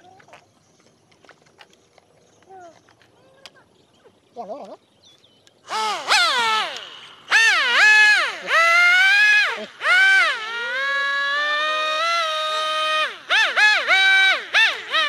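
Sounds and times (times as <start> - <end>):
electric motor and propeller whining: 5.6 - 15.0.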